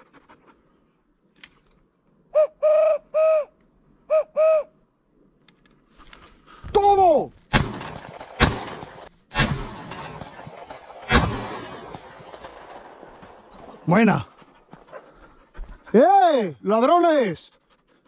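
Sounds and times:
pigeon call coos: 2.3 - 4.8
shotgun shots: 7.5 - 13.7.

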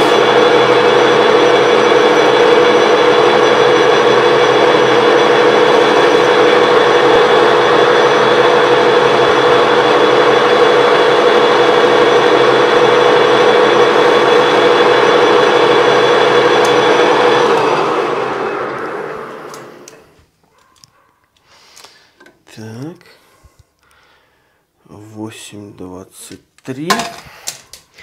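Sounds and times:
metal lathe droning: 0.0 - 20.0.

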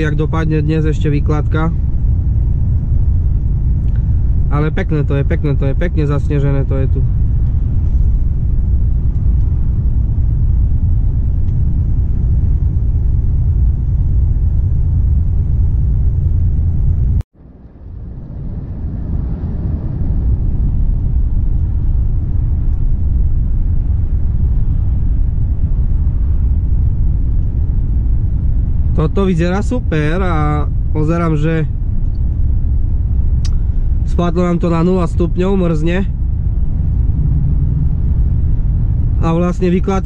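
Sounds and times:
road noise: 0.0 - 40.0
truck diesel engine rumbling: 20.7 - 40.0.

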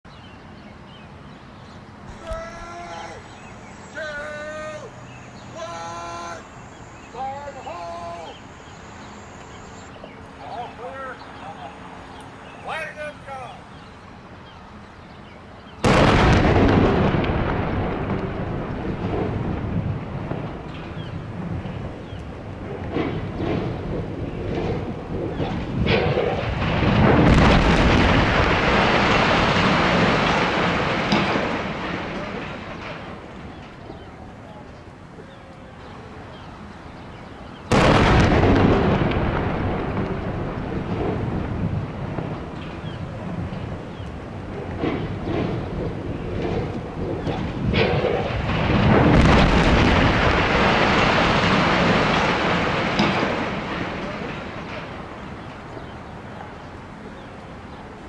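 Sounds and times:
long rolling rumble: 13.6 - 58.0
loud explosion blast: 15.8 - 33.4, 37.7 - 55.4.

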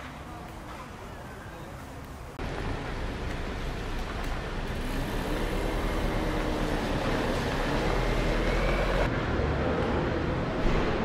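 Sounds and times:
vehicle engine rumbling: 2.4 - 11.0.

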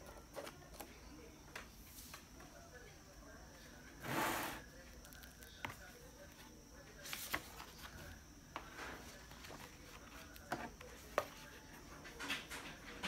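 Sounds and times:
paper pages rustling: 7.0 - 8.1.

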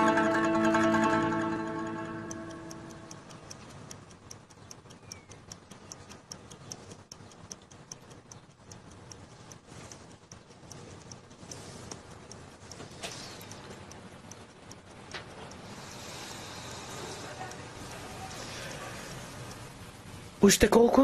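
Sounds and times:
plucked-string music: 0.0 - 3.1
clock ticking: 0.0 - 21.0.

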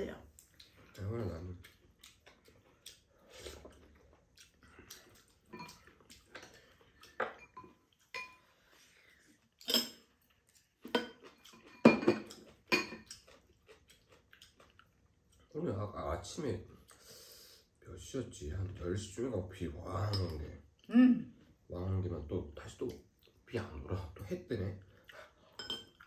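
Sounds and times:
utensils clinking on bowls: 5.4 - 8.5, 10.9 - 13.3, 20.0 - 20.5, 25.5 - 26.0.

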